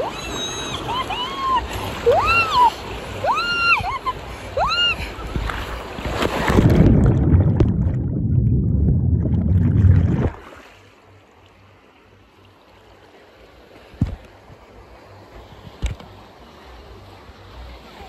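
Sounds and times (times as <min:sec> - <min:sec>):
woman squealing: 0:00.0 - 0:05.2
water rushing over microphone: 0:00.0 - 0:18.0.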